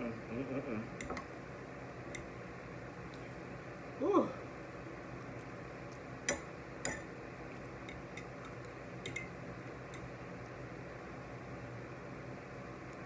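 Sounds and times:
low room hum: 0.0s - 13.0s
metal fork clicking on plate: 9.0s - 9.3s.

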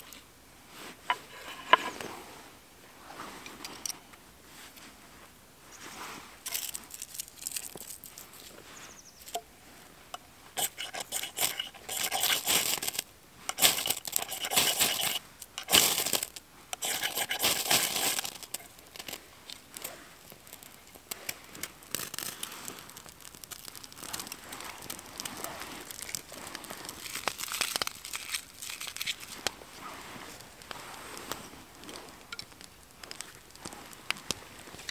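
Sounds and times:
crackle of burning bark: 0.0s - 34.9s
knife scraping ferrocerium rod: 1.1s - 2.0s, 10.6s - 19.2s.

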